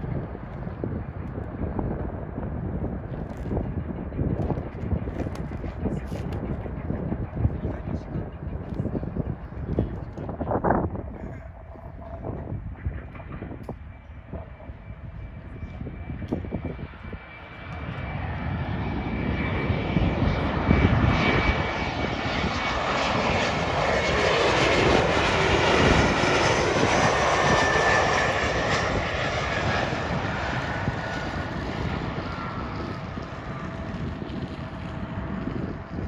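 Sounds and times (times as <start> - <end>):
jet airliner passing: 0.0 - 36.0
jet engine whine: 0.0 - 36.0.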